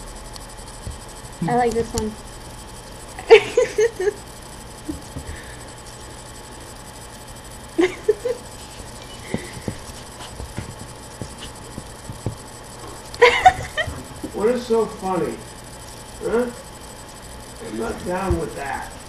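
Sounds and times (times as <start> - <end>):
woman laughing: 3.2 - 4.2, 7.8 - 8.5, 13.2 - 14.0.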